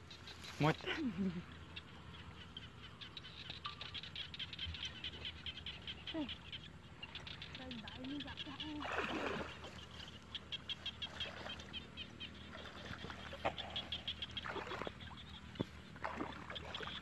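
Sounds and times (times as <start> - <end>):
rapid high clicking calls: 2.8 - 8.8
water splashing: 8.5 - 17.0.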